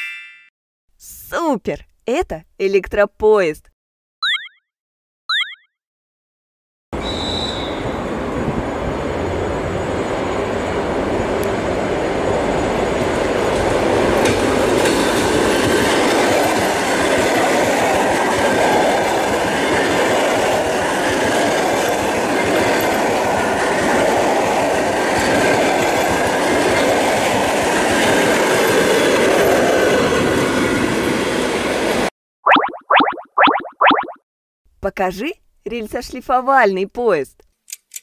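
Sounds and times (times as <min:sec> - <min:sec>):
train wheels running on rails: 0:07.9 - 0:32.1.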